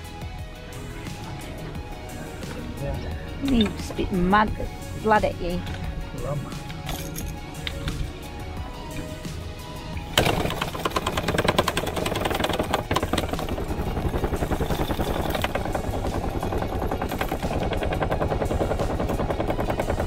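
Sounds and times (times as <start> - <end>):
fish tail drumming on deck: 10.2 - 20.0.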